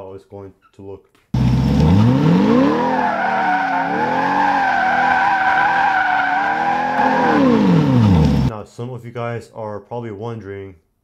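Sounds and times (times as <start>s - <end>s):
car engine revving: 1.4s - 8.5s
tyres squealing: 2.7s - 7.8s.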